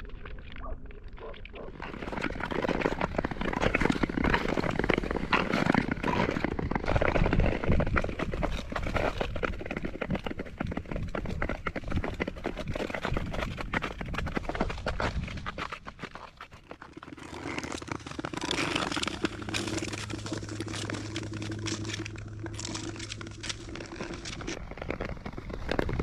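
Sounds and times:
skate blades scraping ice: 0:01.6 - 0:26.0
wind rumble on microphone: 0:03.0 - 0:15.7, 0:19.5 - 0:26.0.

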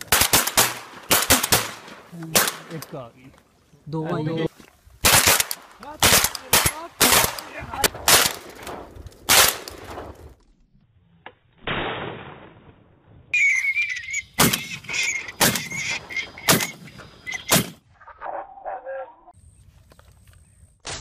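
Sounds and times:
shotgun shots: 0:00.0 - 0:02.8, 0:05.0 - 0:10.1, 0:11.6 - 0:12.6, 0:17.5 - 0:17.8
thin high whistling tone: 0:13.4 - 0:17.5.

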